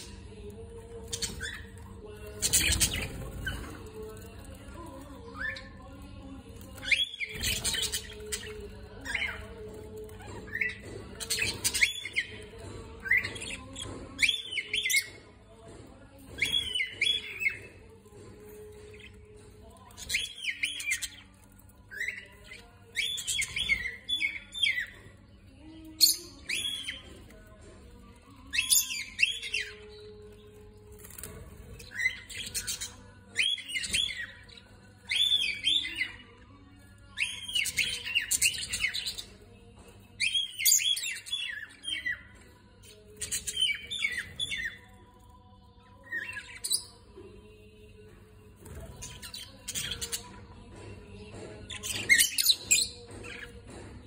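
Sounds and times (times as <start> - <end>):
parrots chirping and squawking: 48.8 - 50.3.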